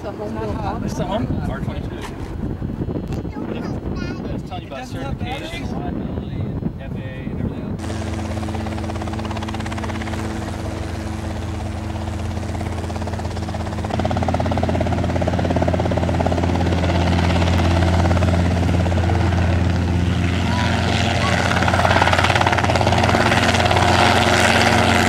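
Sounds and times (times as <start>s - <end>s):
helicopter engine hum: 0.0s - 3.9s, 4.5s - 25.0s
helicopter rotor chop: 6.6s - 25.0s.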